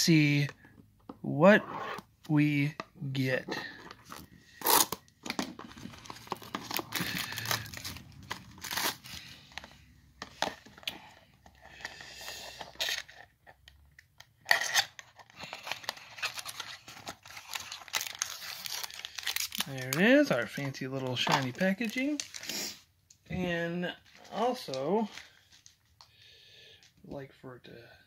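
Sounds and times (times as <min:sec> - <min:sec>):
plastic wrap crinkling and tearing: 0:04.0 - 0:09.7, 0:14.5 - 0:22.8.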